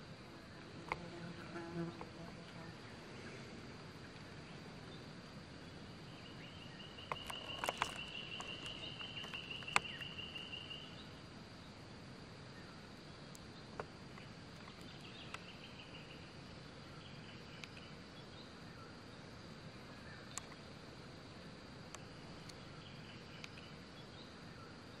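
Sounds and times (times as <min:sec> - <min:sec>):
high insect drone: 0:00.0 - 0:25.0
low hiss: 0:00.0 - 0:25.0.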